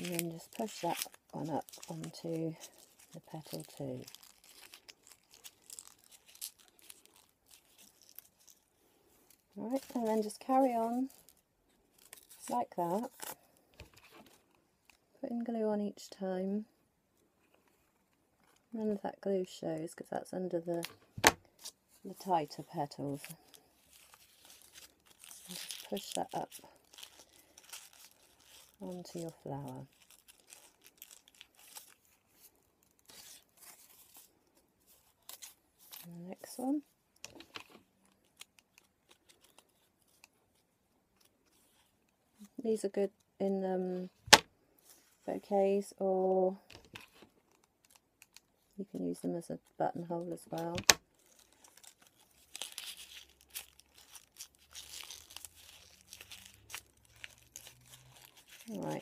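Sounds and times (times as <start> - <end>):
paper rustling and crinkling: 0.0 - 15.0, 20.8 - 42.6, 46.5 - 49.0, 50.3 - 59.0.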